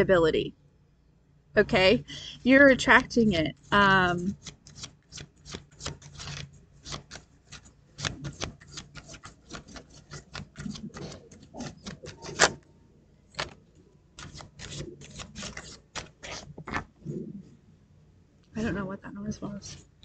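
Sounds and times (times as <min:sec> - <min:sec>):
cards being shuffled: 0:03.6 - 0:12.6, 0:13.3 - 0:17.0.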